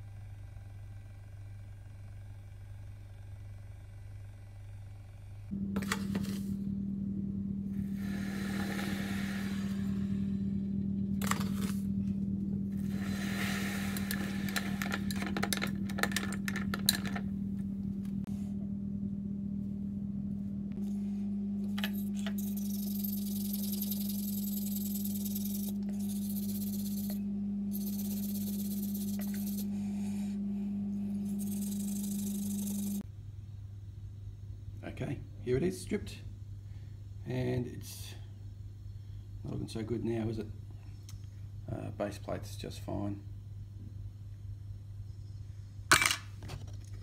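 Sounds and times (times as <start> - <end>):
low electrical hum: 0.0 - 47.0
high hiss: 7.8 - 10.6, 12.8 - 14.8.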